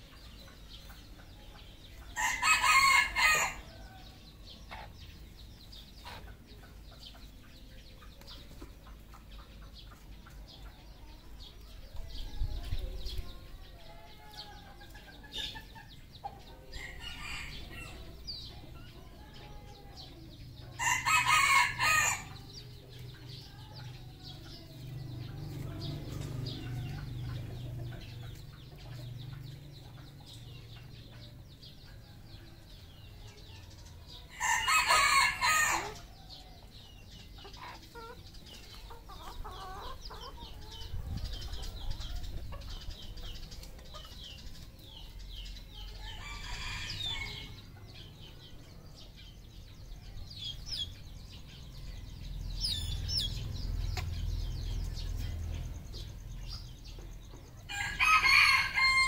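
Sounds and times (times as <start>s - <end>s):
chicken clucking: 0.0s - 59.0s
rooster crowing: 2.2s - 3.7s, 20.8s - 22.4s, 34.4s - 36.0s, 57.7s - 59.0s.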